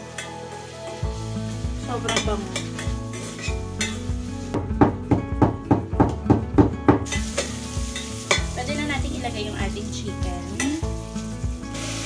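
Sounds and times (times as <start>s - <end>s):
garlic and onion sizzling in oil: 0.0s - 12.0s
metal spoon scraping a pan: 2.0s - 4.1s.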